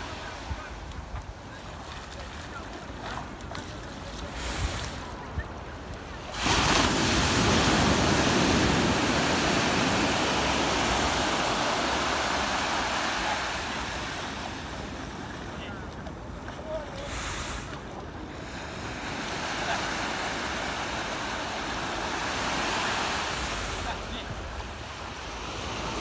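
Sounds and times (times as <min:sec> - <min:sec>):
surf washing onto beach: 0:00.0 - 0:26.0.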